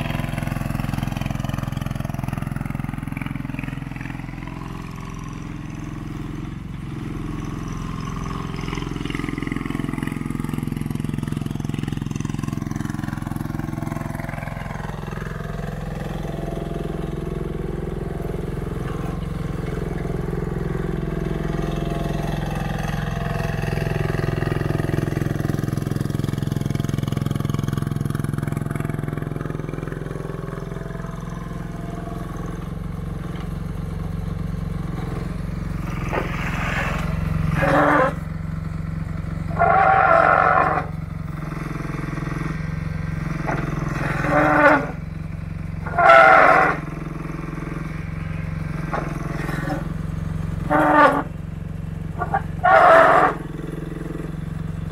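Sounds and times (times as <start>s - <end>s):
mini excavator engine running: 0.0s - 54.9s
harsh hydraulic bursts: 39.5s - 41.0s, 43.5s - 45.0s, 45.8s - 46.9s, 50.6s - 51.4s, 52.1s - 53.5s.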